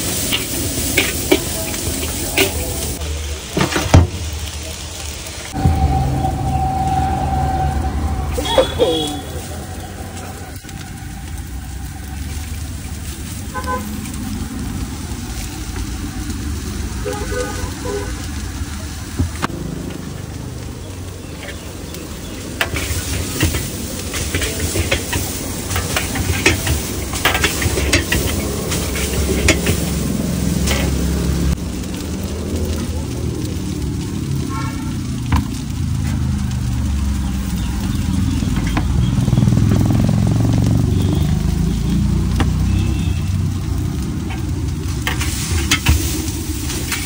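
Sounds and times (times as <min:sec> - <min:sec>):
metal utensil scraping a wok: 0:00.0 - 0:03.0, 0:05.5 - 0:10.8, 0:21.2 - 0:31.6, 0:44.2 - 0:47.0
noodles sizzling in a wok: 0:00.0 - 0:47.0
low rumble: 0:05.5 - 0:16.9, 0:22.4 - 0:34.0.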